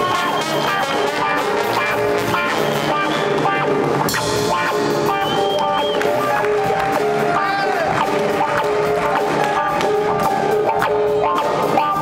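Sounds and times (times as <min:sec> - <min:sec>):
horn section holding notes: 0:00.0 - 0:04.0
drum kit: 0:00.0 - 0:12.0
electric guitar: 0:00.0 - 0:12.0
piano: 0:00.0 - 0:12.0.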